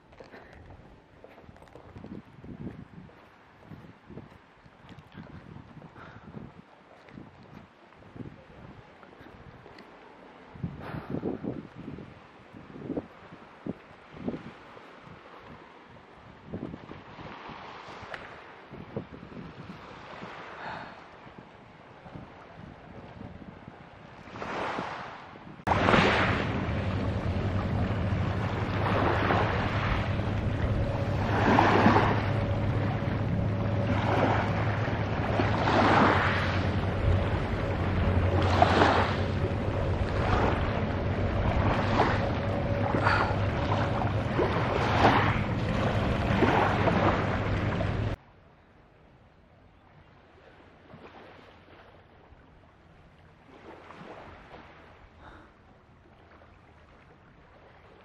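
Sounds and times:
wind rumbling on microphone: 0.0s - 48.2s
waves washing onto pebbles: 25.7s - 48.2s.

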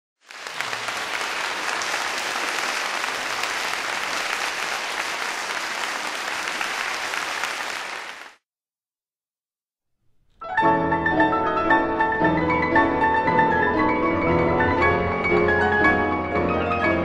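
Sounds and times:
audience applauding: 0.2s - 8.4s.

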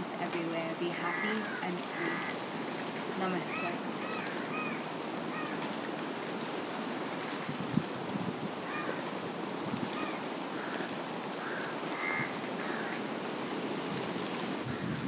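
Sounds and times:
bird cawing: 1.0s - 2.5s, 3.6s - 5.7s, 8.6s - 9.1s, 10.0s - 13.1s, 14.7s - 15.0s.

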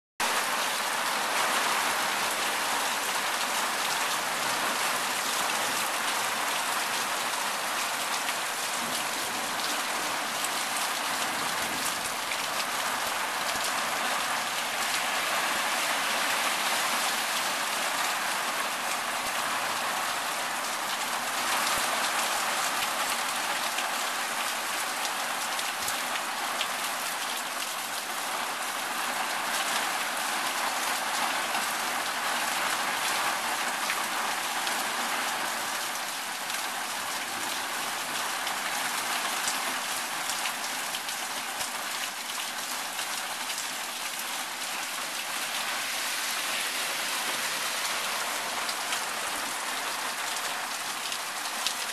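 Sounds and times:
water streaming off awning: 33.3s - 51.9s
rain drops ticking: 35.4s - 45.8s, 46.7s - 51.9s
heavy rain hissing: 44.4s - 51.9s.

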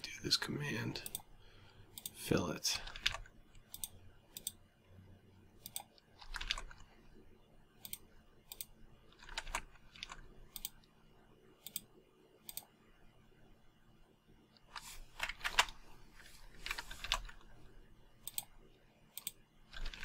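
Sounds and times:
faint computer mouse clicks: 3.6s - 4.6s, 7.8s - 8.7s, 11.6s - 11.9s, 12.5s - 12.7s, 18.2s - 18.5s, 19.2s - 19.4s.

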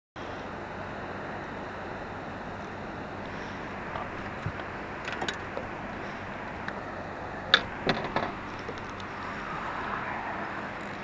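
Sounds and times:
wind: 0.2s - 11.0s
river water rushing: 2.4s - 11.0s
sharp knocks and clicks: 7.5s - 9.1s.

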